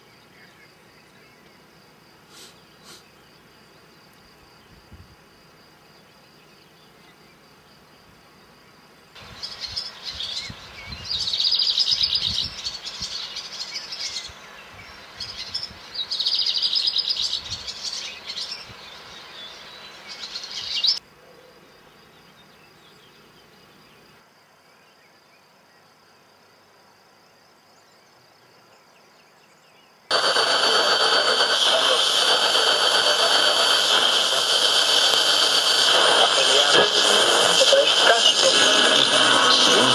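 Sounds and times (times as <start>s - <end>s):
faint hiss: 0.0s - 5.9s, 30.1s - 39.9s
bird chirps and trills: 9.2s - 21.0s.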